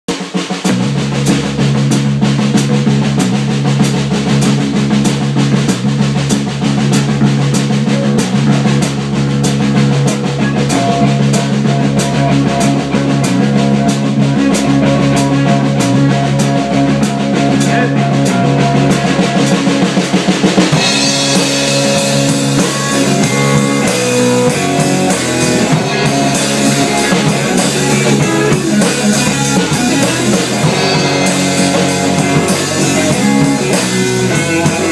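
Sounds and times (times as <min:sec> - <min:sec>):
drum kit beats: 0:00.1 - 0:34.9
electric guitars holding low notes: 0:00.7 - 0:34.9
cymbals washing: 0:18.8 - 0:34.9.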